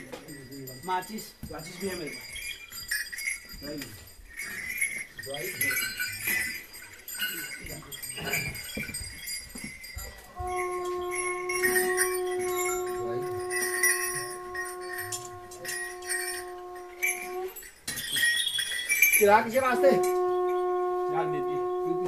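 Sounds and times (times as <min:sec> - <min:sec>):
small bells jingling: 0:00.0 - 0:22.0
horn holding long note: 0:10.4 - 0:17.6, 0:19.6 - 0:22.0.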